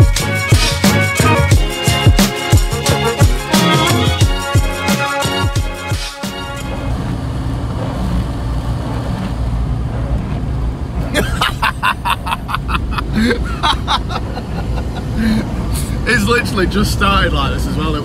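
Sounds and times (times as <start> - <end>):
car engine and road noise: 0.0 - 18.0
man laughing: 11.1 - 15.7.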